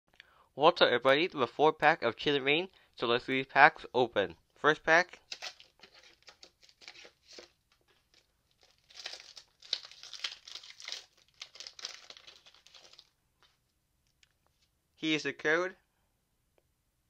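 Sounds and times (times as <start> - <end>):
plastic wrapper crinkling and tearing: 5.2 - 13.1.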